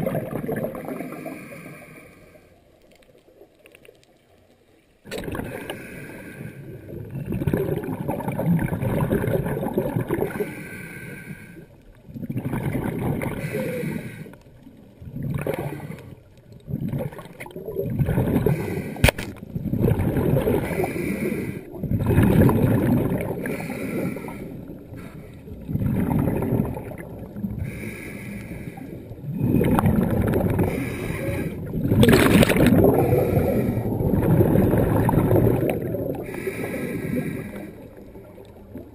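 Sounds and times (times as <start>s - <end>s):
exhaled bubbles rushing: 0.0s - 1.8s, 5.1s - 5.9s, 6.7s - 10.5s, 12.0s - 13.6s, 15.0s - 38.9s
scuba regulator inhale hiss: 1.0s - 2.6s, 5.5s - 6.9s, 10.3s - 11.7s, 13.4s - 14.4s, 18.4s - 19.0s, 20.6s - 21.8s, 23.4s - 25.4s, 27.6s - 29.0s, 30.6s - 31.7s, 33.0s - 34.0s, 36.2s - 38.0s.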